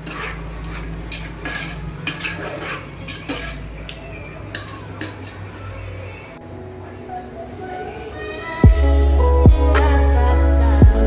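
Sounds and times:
metal spoon scraping a pan: 0.0 - 6.0.

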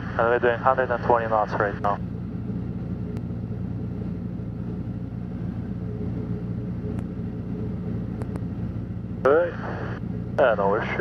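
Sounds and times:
aircraft engine and propeller drone: 0.0 - 11.0
faint clicks: 8.1 - 8.5.

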